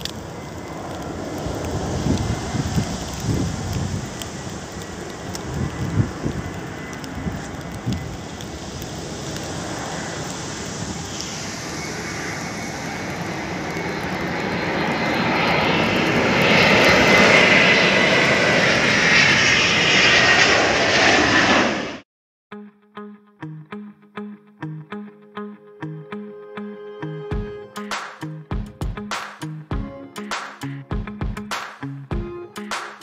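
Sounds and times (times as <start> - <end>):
jet airliner flying overhead: 0.0 - 22.0.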